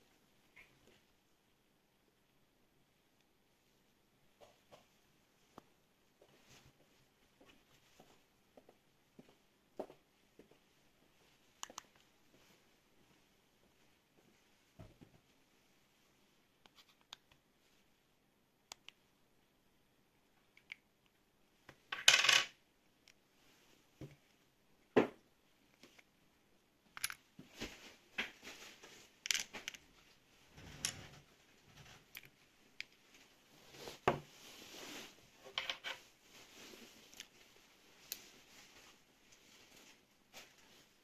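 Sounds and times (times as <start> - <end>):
watch parts clicking and clinking: 26.9 - 27.2, 29.2 - 29.8.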